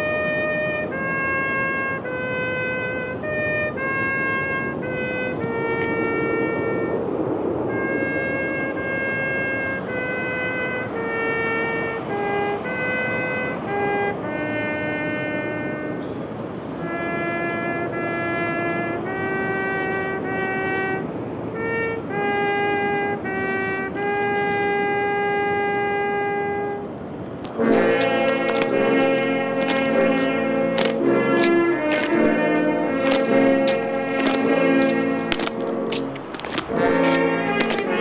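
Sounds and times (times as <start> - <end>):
solo trumpet melody: 0.0 - 38.0.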